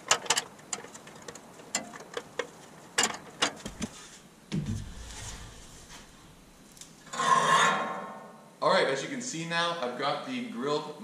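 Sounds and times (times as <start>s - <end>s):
low thud: 4.5s - 6.6s.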